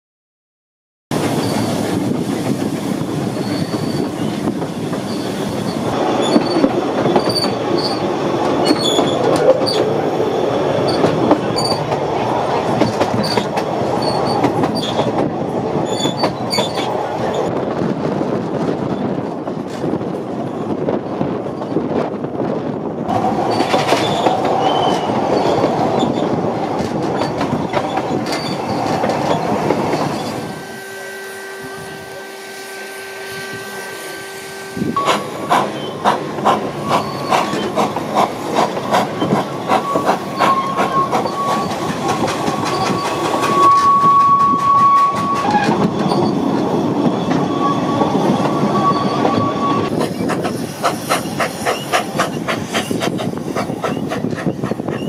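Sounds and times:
train wheels clicking: 0:01.1 - 0:17.4, 0:23.1 - 0:30.4, 0:35.0 - 0:55.0
train wheel squeal: 0:01.2 - 0:11.9, 0:12.6 - 0:15.2, 0:15.8 - 0:17.5, 0:23.2 - 0:55.0.

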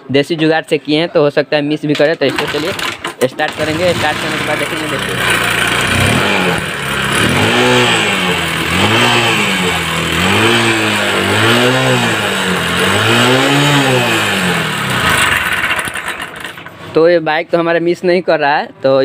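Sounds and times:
motorcycle engine revving: 0:02.2 - 0:17.0.

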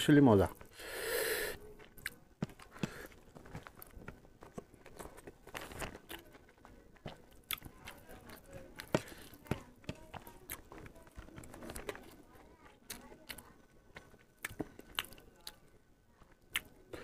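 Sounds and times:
person chewing and crunching: 0:01.8 - 0:09.4, 0:12.8 - 0:15.7, 0:16.3 - 0:17.0.

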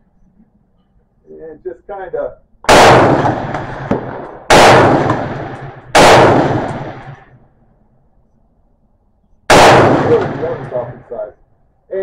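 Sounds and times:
rifle shot with echo: 0:02.6 - 0:07.4, 0:09.5 - 0:11.3.

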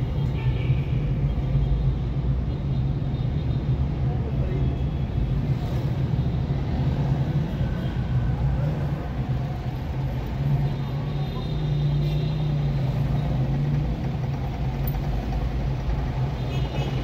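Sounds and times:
road noise: 0:00.0 - 0:17.0.

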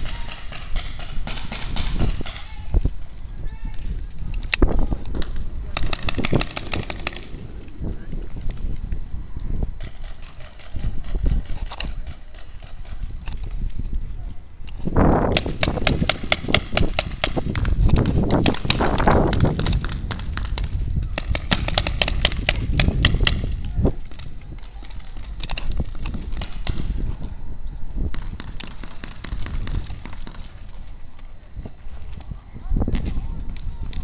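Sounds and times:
paintball markers firing: 0:00.0 - 0:02.5, 0:04.3 - 0:07.4, 0:09.8 - 0:13.6, 0:14.7 - 0:27.0, 0:28.1 - 0:31.0.

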